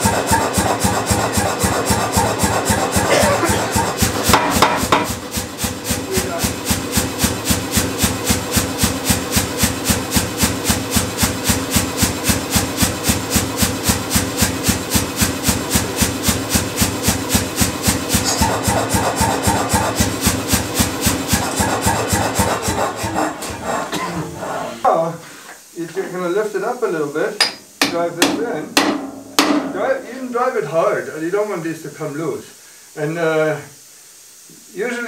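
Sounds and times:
air hammer compressor pulsing: 0.0 - 24.8.

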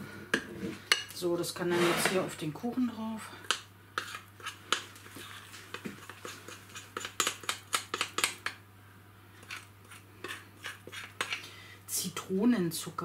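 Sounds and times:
spoon scraping glass bowl: 4.0 - 8.3, 9.4 - 11.4.

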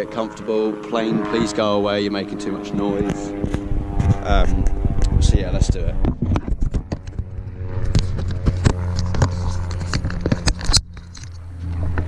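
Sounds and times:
steady low hum: 0.0 - 12.0
bike clicks and rattles: 6.0 - 12.0.

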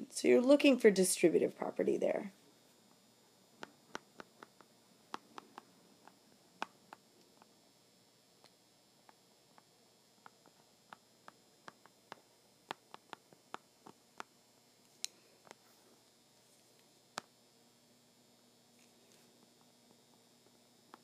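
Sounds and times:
pen tapping on glass screen: 3.6 - 7.0, 9.0 - 14.3.

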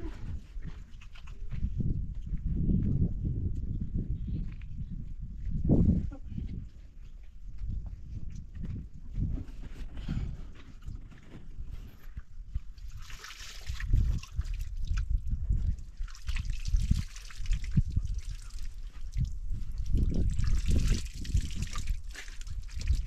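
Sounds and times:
liquid pouring and splashing: 12.8 - 23.0.

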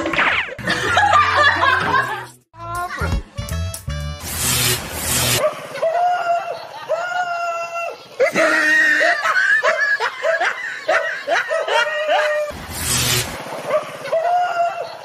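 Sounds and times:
dog yelping: 9.6 - 12.5.

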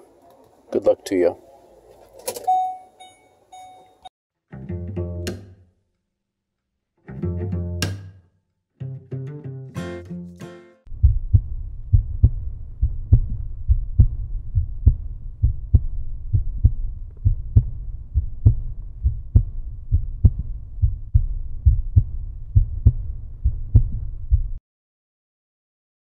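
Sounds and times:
heartbeat thumps: 10.9 - 24.6
low rumble: 10.9 - 24.6.

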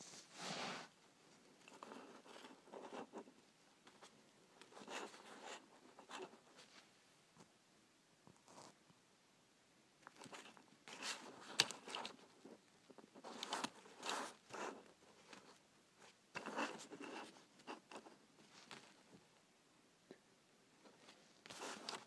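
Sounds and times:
handling rubs and clicks: 10.0 - 19.0, 21.0 - 22.0.

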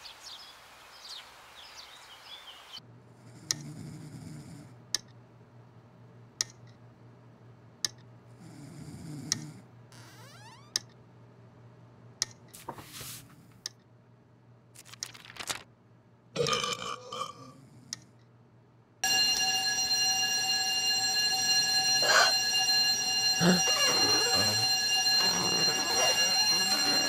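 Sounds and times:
fire station alarm ringing: 19.0 - 27.0
cartoon sound effects: 23.4 - 24.6, 25.2 - 27.0.

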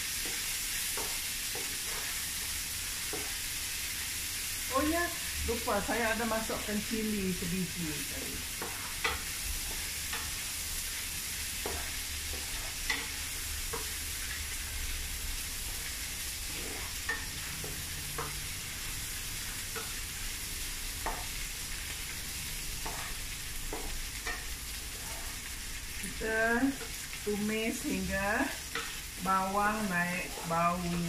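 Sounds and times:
spatula scraping a pan: 0.0 - 3.5, 8.4 - 26.1, 27.8 - 31.0
food sizzling in hot oil: 0.0 - 31.0.

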